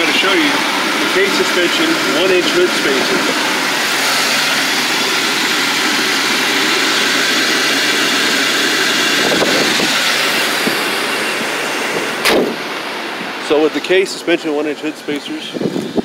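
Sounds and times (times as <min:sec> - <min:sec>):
car engine idling: 0:00.0 - 0:16.0
wind noise on microphone: 0:09.1 - 0:10.8, 0:15.5 - 0:16.0.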